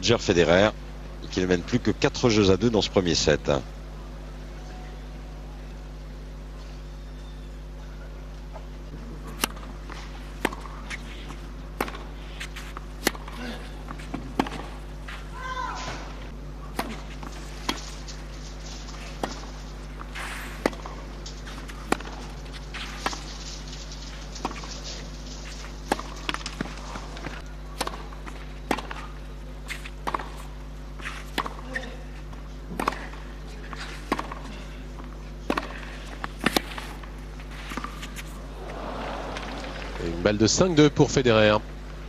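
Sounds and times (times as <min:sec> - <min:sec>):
steady low hum: 0:00.0 - 0:42.0
tennis ball struck by rackets: 0:09.3 - 0:31.9, 0:32.7 - 0:34.5, 0:35.4 - 0:39.1
shoes scuffing on clay: 0:09.8 - 0:16.1.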